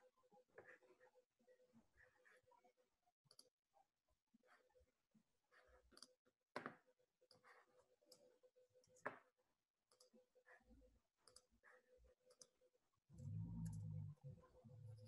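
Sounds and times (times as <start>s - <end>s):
computer mouse clicks: 3.3s - 3.5s, 9.9s - 10.2s, 11.2s - 11.5s, 13.2s - 14.1s.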